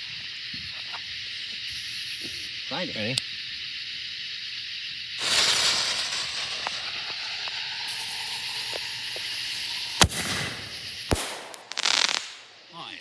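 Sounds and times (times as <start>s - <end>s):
fuse hissing: 0.0s - 13.0s
firework shell bang: 5.2s - 12.5s.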